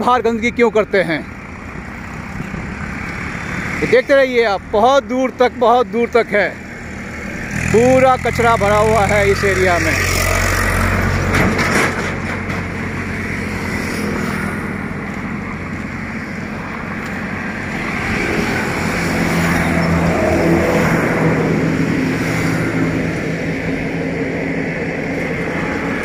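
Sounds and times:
engine running: 0.0 - 26.0.

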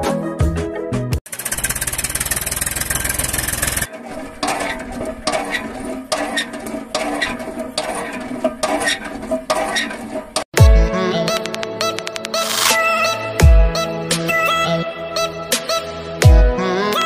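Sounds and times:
hand pump handle clacking: 1.3 - 10.4
tractor engine chugging: 1.3 - 10.4.

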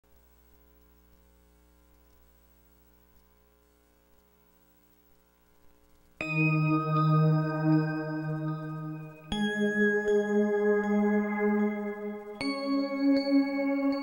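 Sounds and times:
faint electrical hum: 0.0 - 14.0
ringing bell-like jingle: 6.2 - 14.0.

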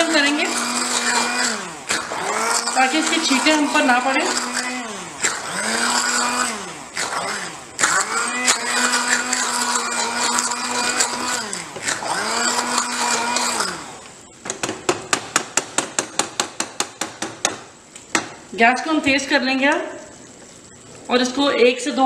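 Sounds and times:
hand blender motor whirring: 0.0 - 14.2.

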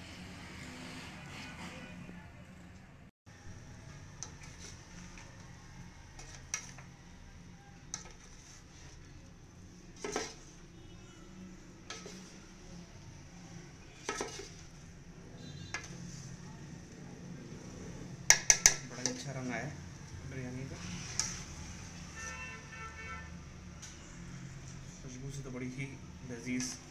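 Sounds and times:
spoon scraping a metal pot: 4.2 - 5.4, 6.1 - 7.0, 7.8 - 9.2, 9.8 - 10.7, 11.6 - 12.6, 13.9 - 16.3, 20.7 - 22.6.

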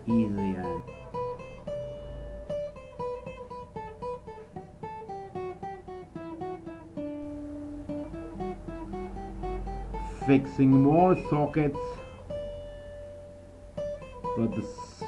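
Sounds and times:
acoustic guitar plucked melody: 0.0 - 15.0.

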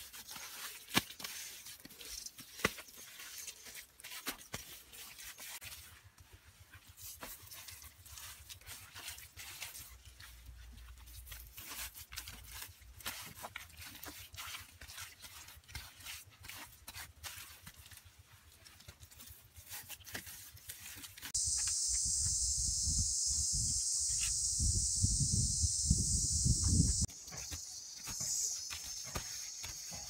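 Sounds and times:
high insect drone: 21.4 - 30.0.

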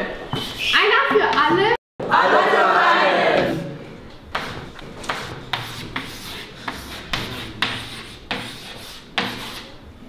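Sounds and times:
chalk scratching on chalkboard: 0.3 - 0.9, 4.3 - 9.8.

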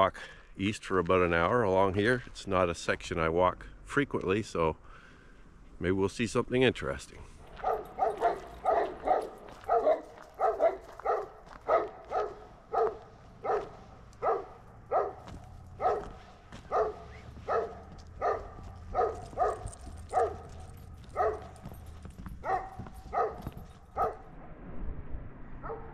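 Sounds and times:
dog barking: 7.5 - 24.2.

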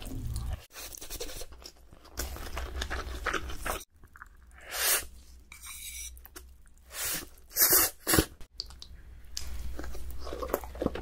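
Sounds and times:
chewing: 0.1 - 4.5, 8.6 - 11.0.

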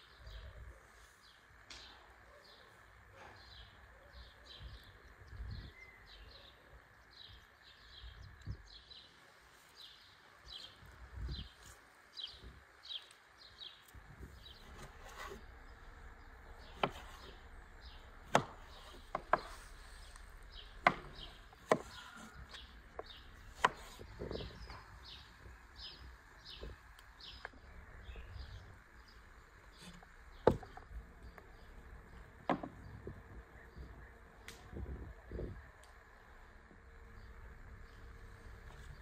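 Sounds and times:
cleaver chopping on wooden board: 16.6 - 17.4, 18.2 - 19.6, 20.8 - 24.7, 29.8 - 30.8, 32.5 - 32.8.

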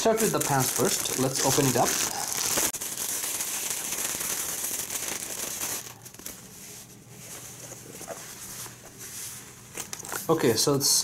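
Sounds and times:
plastic bag crinkling: 0.0 - 6.5
faint handling sounds: 6.0 - 10.6.

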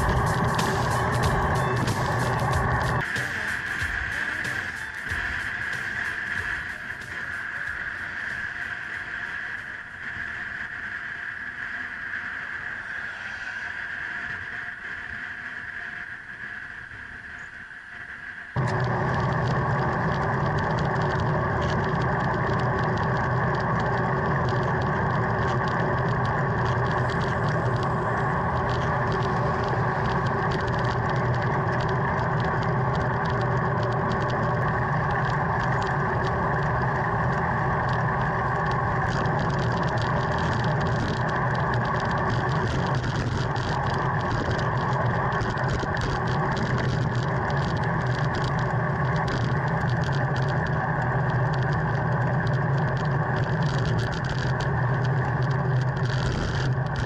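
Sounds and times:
tyres on asphalt: 0.0 - 57.0
air rushing past: 1.9 - 16.8.

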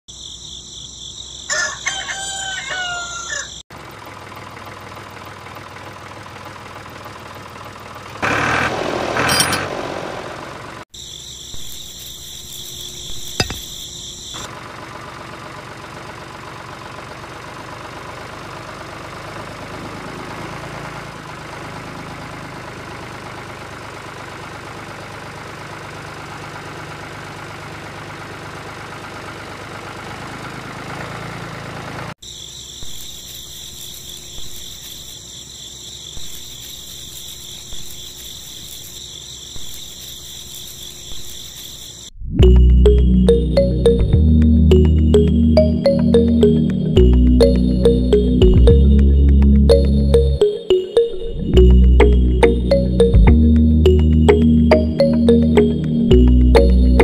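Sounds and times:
crowing call: 1.5 - 3.6
small electric motor hum: 32.8 - 42.1.

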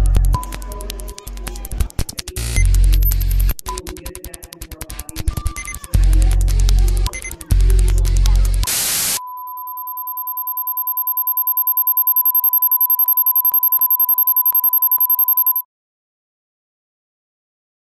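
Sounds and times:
deep bass pulses: 0.0 - 3.5, 6.0 - 8.6
rapid electronic clicks: 0.0 - 15.6
steady sine tone: 2.4 - 3.5, 6.0 - 15.6
white noise burst: 8.6 - 9.2
high thin pulsing tone: 9.4 - 15.6.

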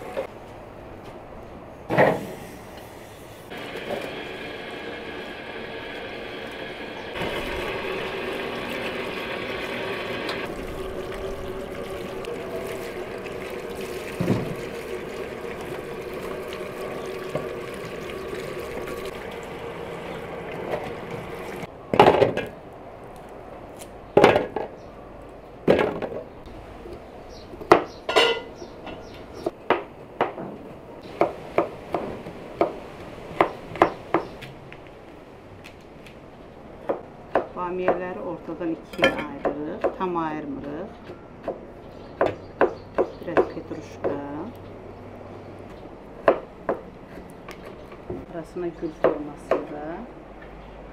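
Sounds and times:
tap water running into colander: 7.2 - 21.7
clinks and knocks against metal: 28.1 - 29.0.

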